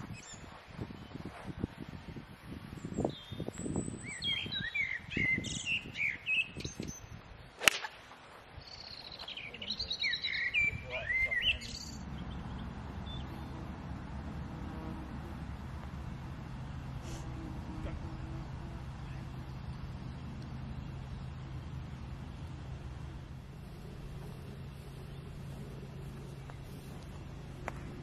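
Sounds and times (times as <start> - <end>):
birds chirping and trilling: 0.0 - 7.8, 8.5 - 28.0
steady low background noise: 1.7 - 28.0
golf club striking ball: 7.6 - 8.0.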